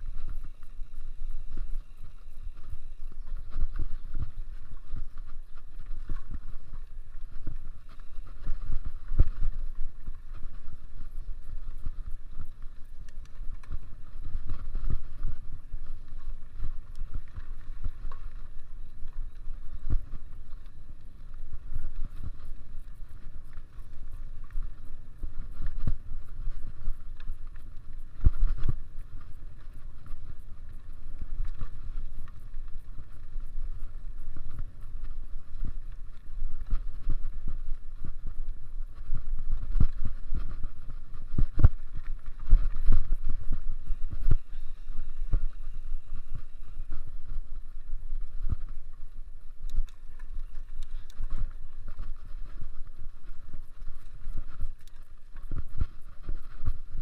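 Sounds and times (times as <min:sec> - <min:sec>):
bike tyre noise: 0:00.0 - 0:57.0
wind rumble on microphone: 0:00.0 - 0:57.0.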